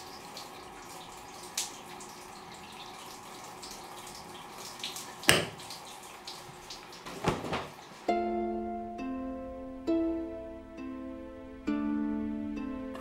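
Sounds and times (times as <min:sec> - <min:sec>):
tap water running into sink: 0:00.0 - 0:07.9
water splashes: 0:00.0 - 0:07.9.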